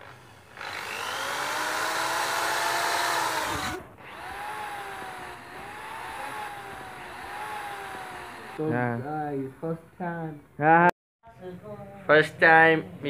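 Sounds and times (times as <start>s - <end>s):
electric drill motor whining: 0.0s - 8.6s.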